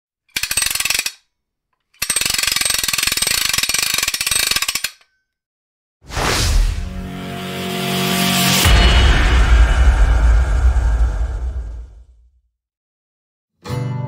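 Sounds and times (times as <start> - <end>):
rapid mechanical clicks: 0.3 - 1.2, 1.8 - 5.1
whoosh: 6.0 - 12.3.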